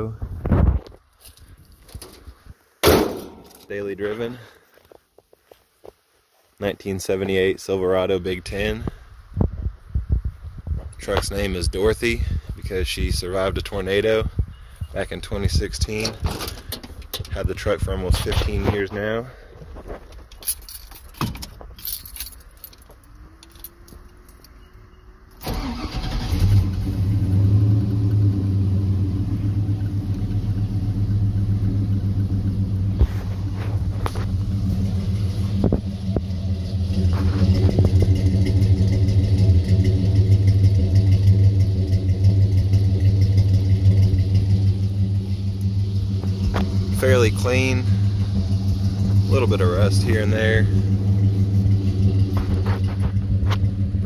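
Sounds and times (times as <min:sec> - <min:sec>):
truck engine starting and idling: 0:11.0 - 0:19.9, 0:25.2 - 0:54.0.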